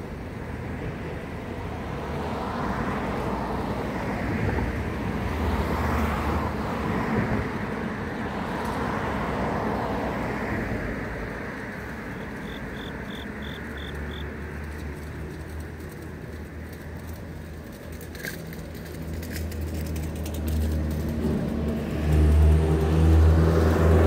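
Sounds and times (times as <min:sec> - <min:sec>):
vehicle engine hum: 0:00.0 - 0:24.0
insect chirping: 0:12.0 - 0:14.3.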